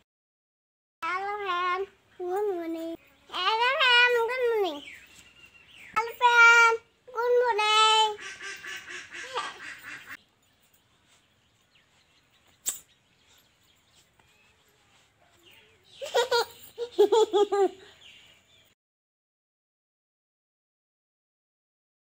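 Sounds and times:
girl chattering: 0:06.0 - 0:08.2, 0:09.2 - 0:09.7
laughter: 0:16.0 - 0:18.0.

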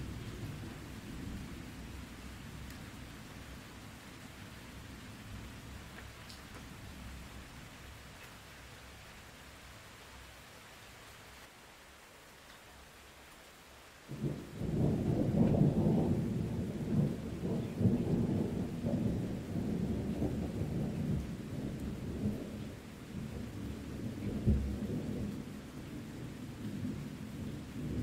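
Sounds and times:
steady rain: 0:00.0 - 0:28.0
deep rumbling thunder: 0:14.1 - 0:28.0.

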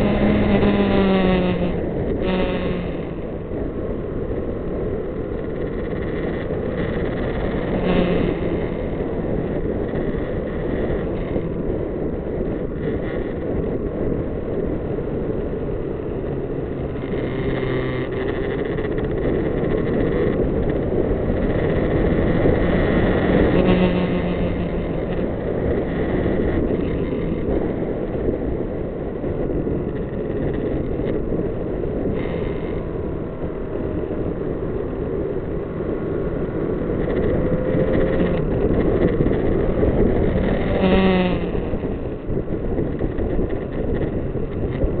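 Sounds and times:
motorcycle engine running: 0:00.0 - 0:45.0
wind rushing over microphone: 0:00.0 - 0:45.0.

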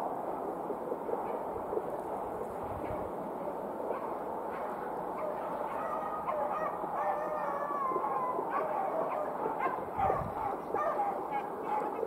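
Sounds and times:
beagles baying: 0:03.9 - 0:12.0.

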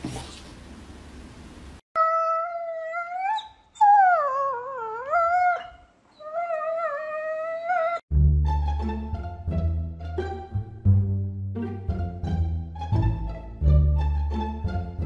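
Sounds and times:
dog howling: 0:02.0 - 0:08.0.

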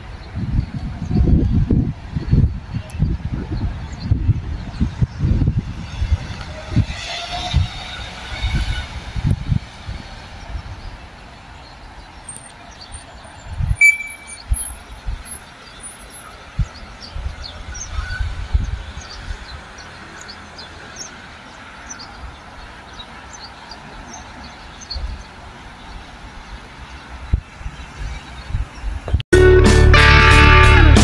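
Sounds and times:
distant traffic hum: 0:00.0 - 0:29.2
wind buffeting microphone: 0:00.0 - 0:29.2
small birds chirping: 0:10.2 - 0:29.2.

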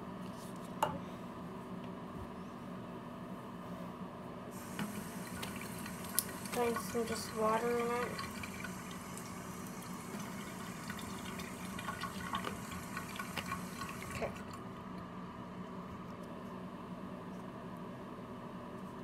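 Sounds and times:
water running into plastic case: 0:04.6 - 0:14.6.

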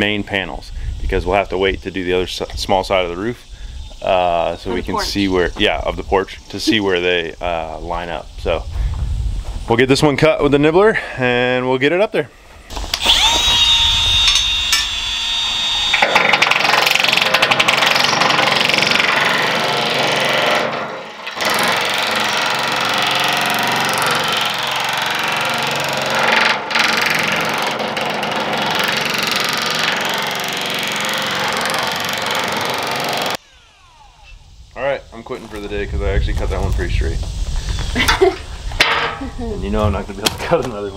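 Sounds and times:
power nibbler cutting metal: 0:12.7 - 0:34.5.

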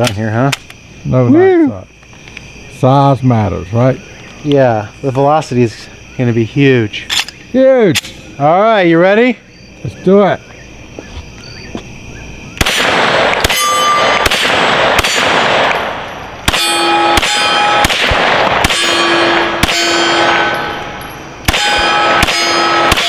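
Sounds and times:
pistol shots: 0:12.6 - 0:23.0
steel targets clanging: 0:13.4 - 0:14.3, 0:15.0 - 0:18.0, 0:18.6 - 0:23.0.

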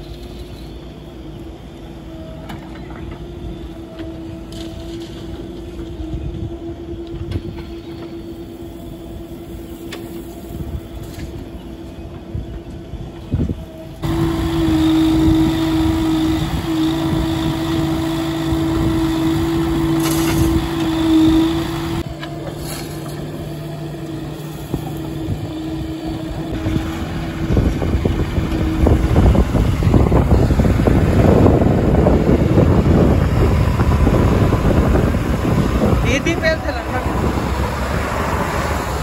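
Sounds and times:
diesel engine humming: 0:00.0 - 0:39.0.

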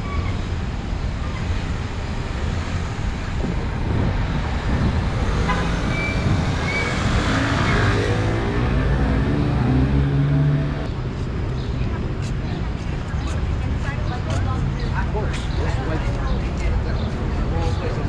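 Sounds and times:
cars passing: 0:00.0 - 0:18.0
engine drone: 0:04.8 - 0:10.9.

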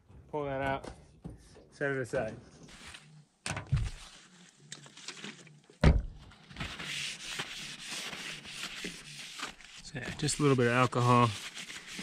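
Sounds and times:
paper towel rubbing metal roof: 0:06.5 - 0:12.0.

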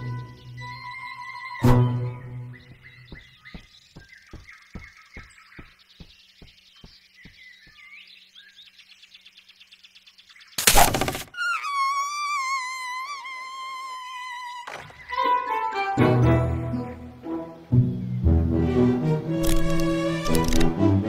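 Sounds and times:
faint bird chirps: 0:00.0 - 0:15.5.

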